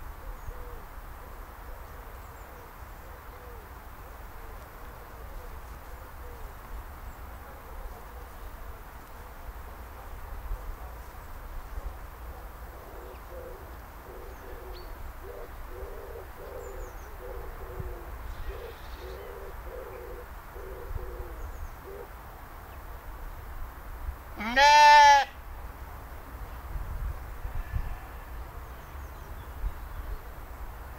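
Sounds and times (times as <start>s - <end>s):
faint outdoor background: 0.0s - 30.9s
low hooting bird calls: 0.2s - 8.5s, 11.8s - 22.2s
sheep bleating: 24.4s - 25.4s.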